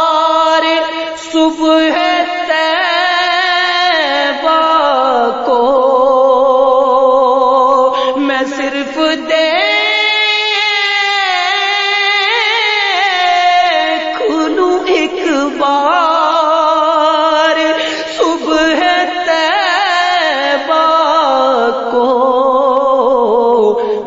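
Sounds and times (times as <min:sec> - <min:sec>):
wordless melismatic singing: 0:11.4 - 0:22.2.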